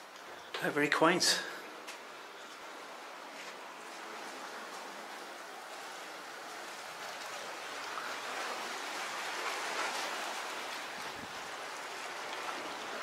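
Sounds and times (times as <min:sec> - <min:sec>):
sea water washing against rocks: 0:03.1 - 0:13.0.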